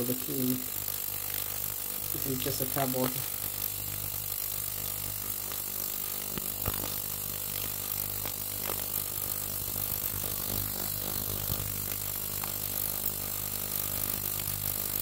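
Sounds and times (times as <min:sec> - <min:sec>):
ultrasonic cleaner buzzing: 0:00.0 - 0:15.0.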